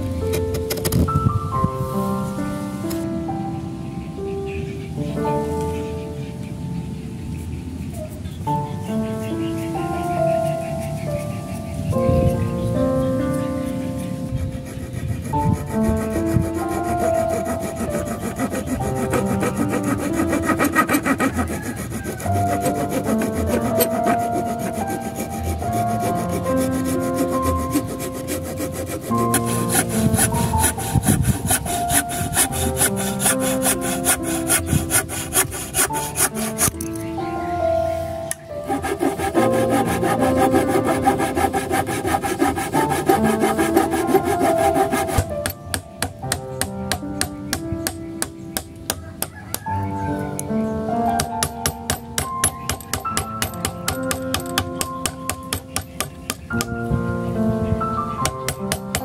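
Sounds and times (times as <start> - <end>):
hacksaw blade sawing wood: 13.7 - 37.0, 38.3 - 49.6, 51.2 - 56.7, 58.2 - 59.0.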